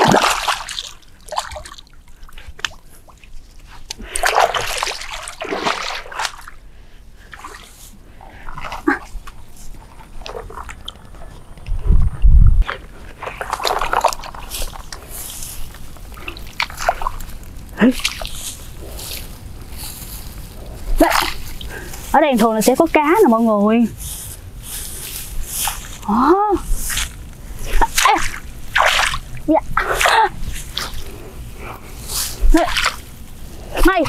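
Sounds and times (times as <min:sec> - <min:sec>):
water splashing from wading: 0:00.0 - 0:02.0, 0:04.1 - 0:06.6, 0:28.0 - 0:31.0.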